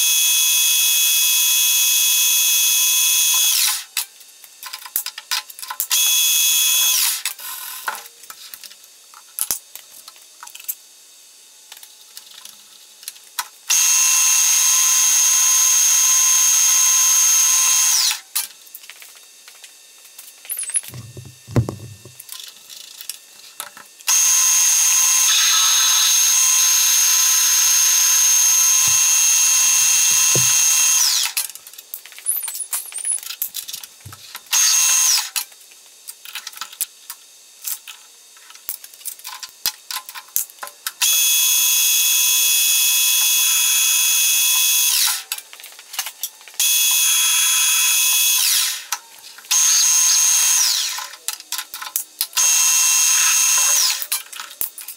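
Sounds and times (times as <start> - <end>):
low clunks: 20.9 - 22.2.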